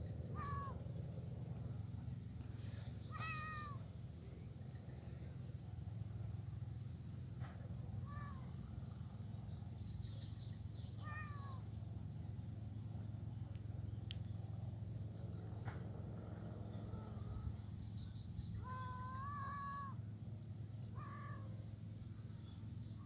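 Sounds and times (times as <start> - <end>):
high insect drone: 0.0 - 23.0
kitten mewing: 0.3 - 0.8, 3.1 - 3.8, 8.0 - 8.5, 11.0 - 11.6, 18.6 - 20.0, 21.0 - 21.5.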